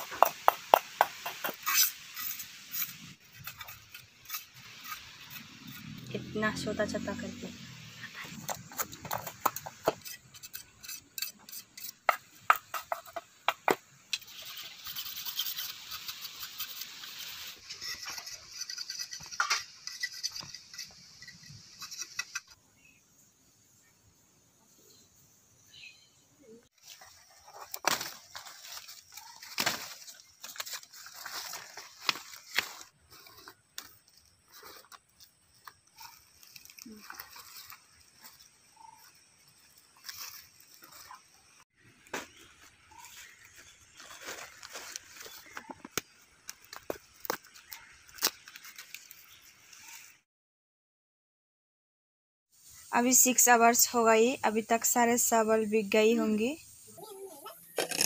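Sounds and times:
knife scraping bamboo: 0.0s - 6.2s, 8.0s - 22.6s, 26.8s - 41.3s, 42.3s - 50.0s, 57.4s - 58.0s
leaves rustling and crackling: 26.7s - 50.2s.

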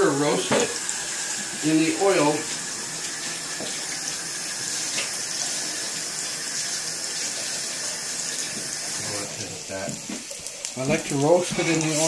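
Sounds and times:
tap running into sink: 0.3s - 4.2s, 4.8s - 5.2s, 8.3s - 12.0s.

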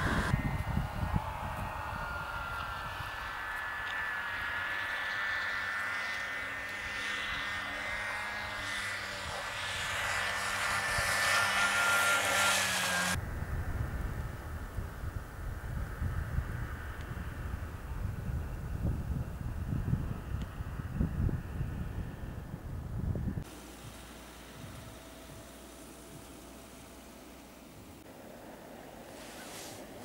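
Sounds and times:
low-pitched noise: 0.0s - 11.0s, 18.0s - 28.2s
snowmobile engine whine: 0.0s - 30.0s.

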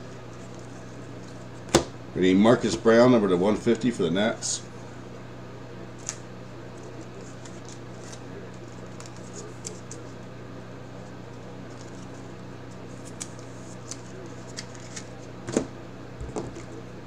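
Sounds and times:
steady low hum: 0.0s - 17.0s
trading cards clicking and scraping: 6.0s - 10.2s, 11.3s - 15.6s.

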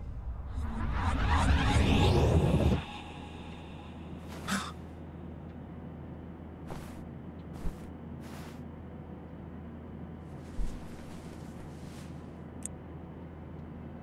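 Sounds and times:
airliner cabin drone: 0.0s - 14.0s
soft rustles: 4.3s - 4.6s, 6.7s - 8.6s, 10.3s - 12.4s.

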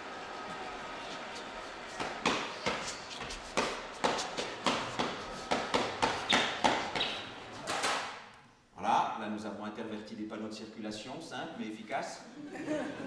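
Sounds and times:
sharp knocks and smacks: 2.0s - 8.2s.

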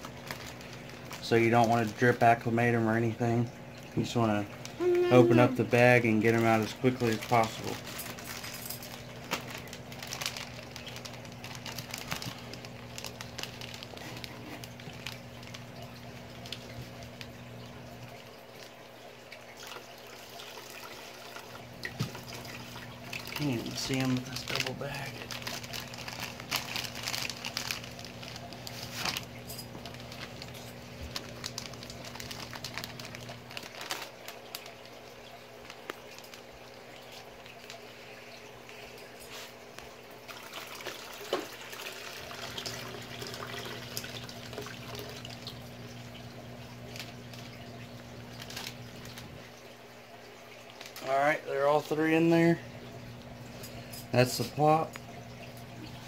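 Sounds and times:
plastic bag crinkling: 0.0s - 3.0s, 4.1s - 18.8s, 19.6s - 37.9s, 40.4s - 49.5s, 50.7s - 51.1s
low steady hum: 0.0s - 56.0s.

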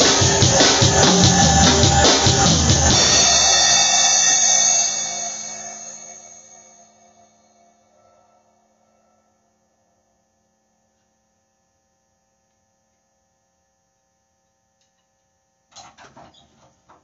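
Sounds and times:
drum kit ringing tone: 0.0s - 7.2s.

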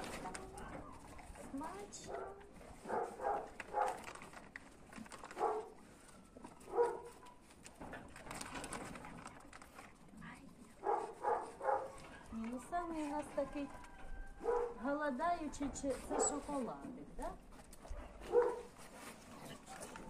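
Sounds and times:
dogs barking and yipping: 2.0s - 4.2s, 5.2s - 7.6s, 10.8s - 12.4s, 13.8s - 15.0s, 15.9s - 16.6s, 17.8s - 18.9s.

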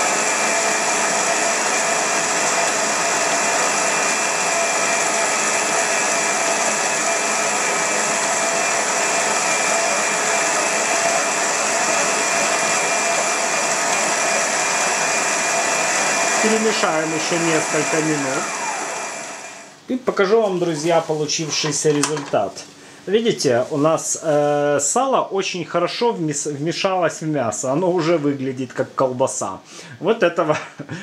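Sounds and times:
stand mixer motor whining: 0.0s - 19.8s.

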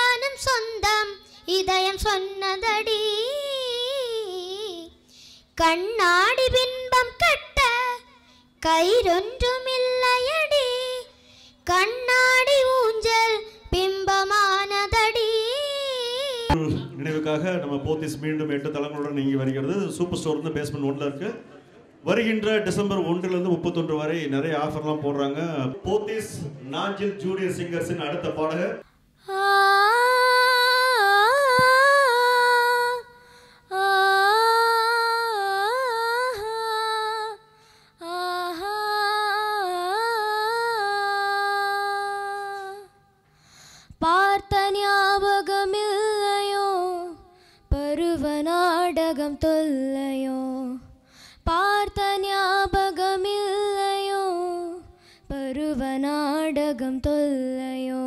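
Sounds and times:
girl singing unaccompanied: 0.0s - 16.6s, 29.2s - 43.0s, 44.0s - 58.0s.

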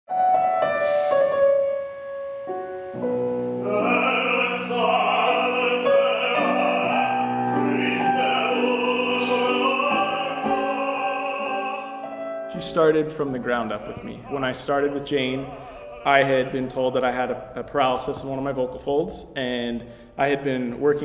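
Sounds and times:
grand piano: 0.1s - 21.0s
operatic tenor singing: 3.6s - 17.5s.

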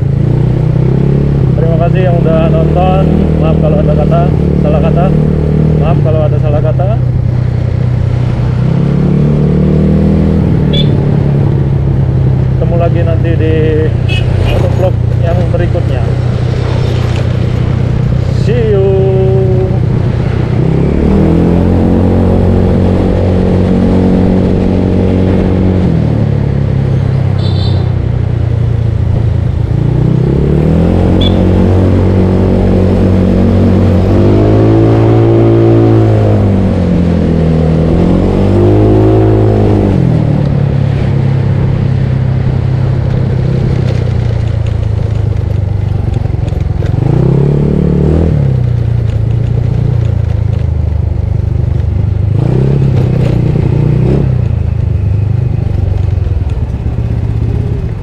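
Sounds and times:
scooter engine accelerating: 42.7s - 58.0s.

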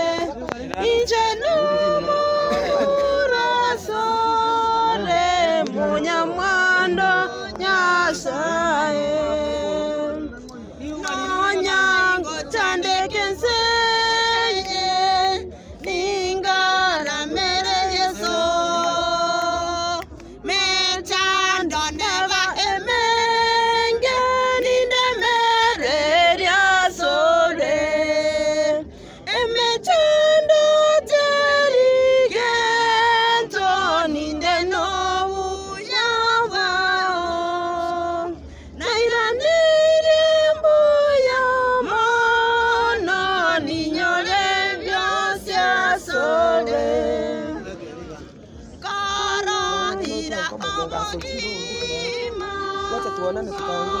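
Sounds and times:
women singing unaccompanied: 0.0s - 48.0s, 48.6s - 54.0s.

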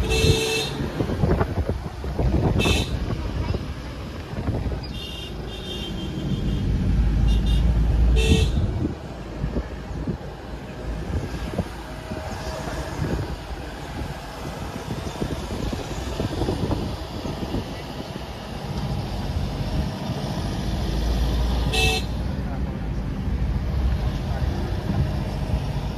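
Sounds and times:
car road and wind rumble: 0.0s - 25.9s.

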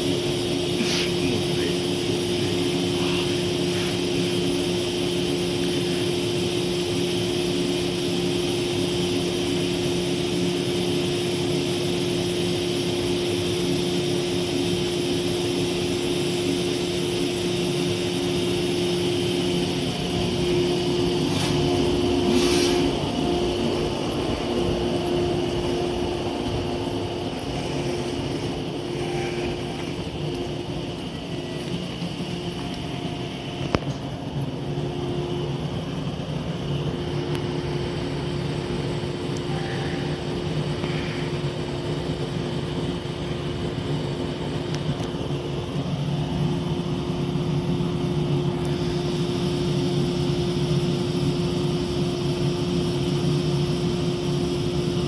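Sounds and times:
electric train humming: 0.0s - 55.0s
short hisses: 0.8s - 1.4s, 21.2s - 23.0s.

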